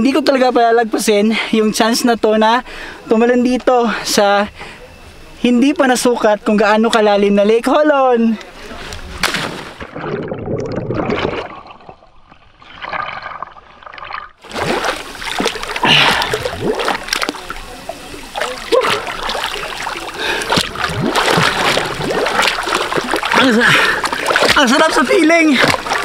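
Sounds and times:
water splashing and sloshing: 9.2s - 26.0s
muffled underwater gurgling: 9.9s - 26.0s.

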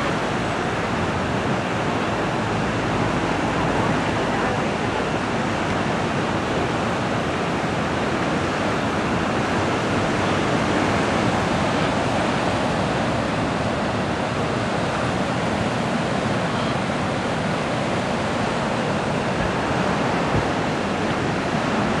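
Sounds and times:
ocean waves breaking: 0.0s - 22.0s.

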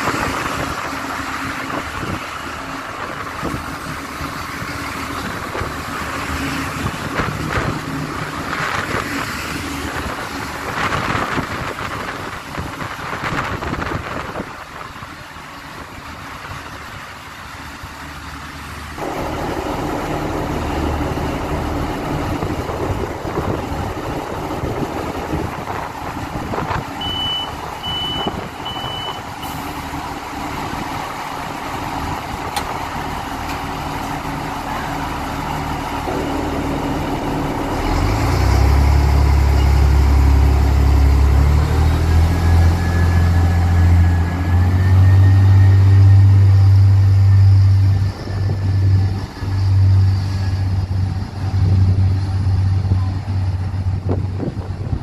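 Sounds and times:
diesel train engine drone: 0.0s - 55.0s
door closing warning beeps: 27.0s - 29.3s.

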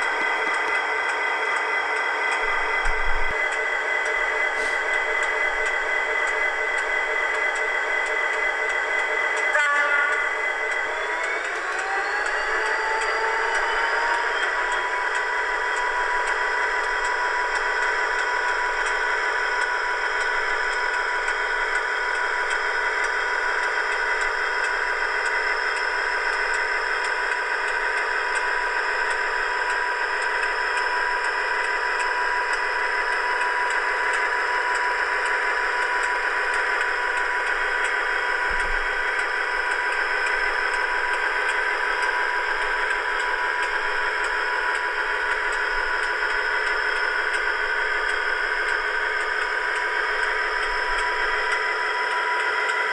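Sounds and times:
diesel engine sound through small speaker: 0.0s - 52.9s.

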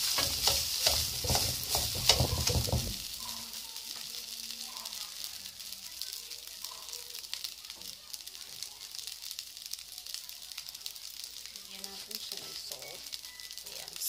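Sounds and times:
metal ladle scraping wok: 0.0s - 2.8s
rice sizzling in oil: 0.0s - 14.0s.

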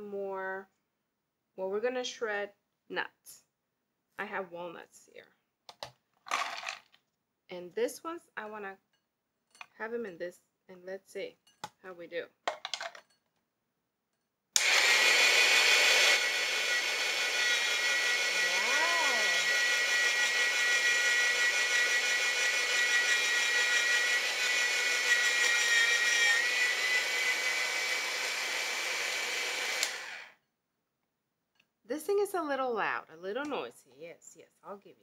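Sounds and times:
electric motor grinding nuts: 14.6s - 30.4s.

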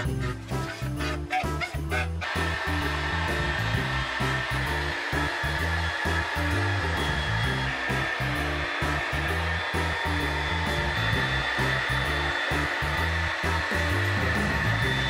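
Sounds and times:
background music with bass beat: 0.0s - 15.0s.

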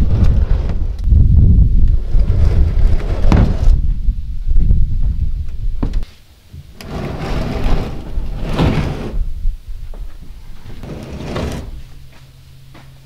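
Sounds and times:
wind rumbling on microphone: 0.0s - 12.1s
plastic hull scraping on metal rack: 6.8s - 9.2s, 10.7s - 11.9s.

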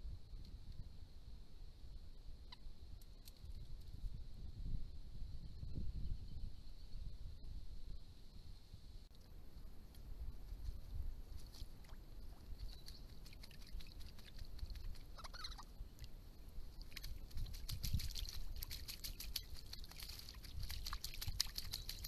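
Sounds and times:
bird wings splashing water: 11.4s - 15.7s, 16.7s - 22.0s
bird chirp: 12.6s - 13.3s, 15.2s - 15.7s.

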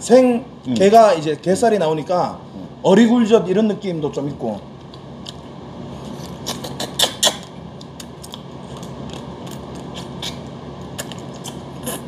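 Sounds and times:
steady low hum: 0.0s - 12.0s
wet chewing and sucking: 5.2s - 12.0s.

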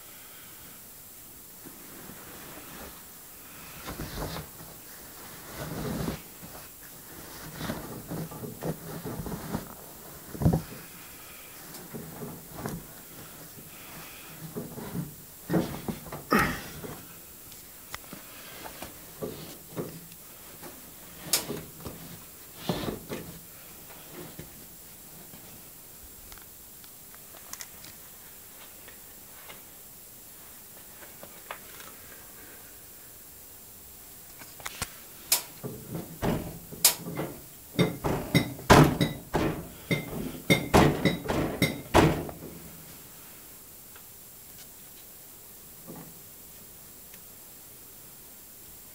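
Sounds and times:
cloth rustling: 1.6s - 10.9s, 11.6s - 17.1s
bumps and knocks: 35.6s - 42.7s
laundry pushed into washing machine drum: 35.6s - 42.7s.

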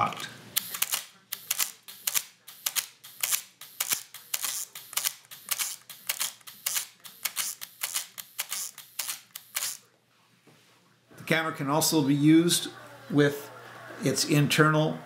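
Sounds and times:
camera shutter and motor clicks: 0.6s - 9.8s.

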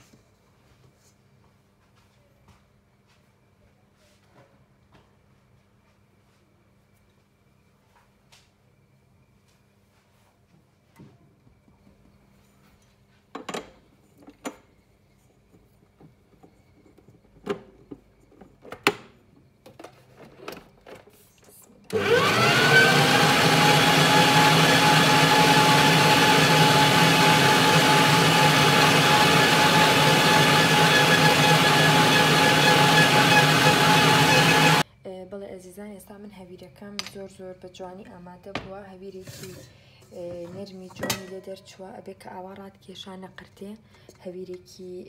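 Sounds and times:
stand mixer motor whining: 21.9s - 34.8s.

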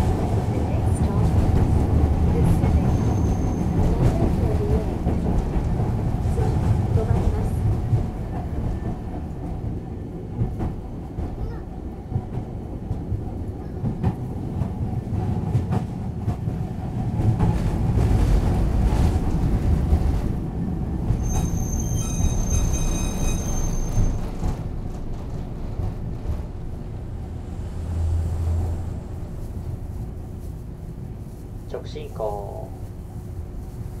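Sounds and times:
tram motors and wheels rumbling: 0.0s - 34.0s
metallic wheel squeal: 2.9s - 3.7s, 21.2s - 24.3s.

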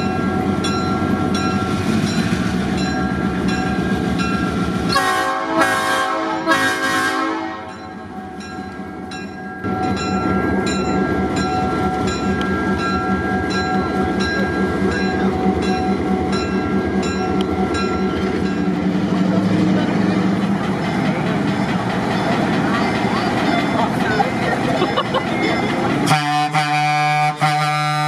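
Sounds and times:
locomotive horn blasts: 4.9s - 7.8s, 26.1s - 28.0s.

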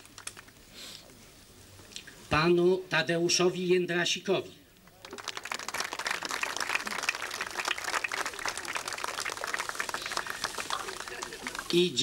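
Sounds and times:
crowd applauding: 4.9s - 12.0s.

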